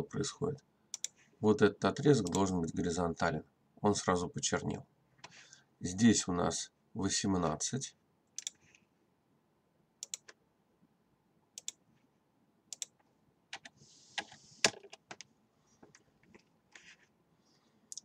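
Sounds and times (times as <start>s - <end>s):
mouse clicks: 0.9s - 1.2s, 8.4s - 8.6s, 10.0s - 10.4s, 11.6s - 11.8s, 12.7s - 13.0s
soft rustle: 15.6s - 17.8s.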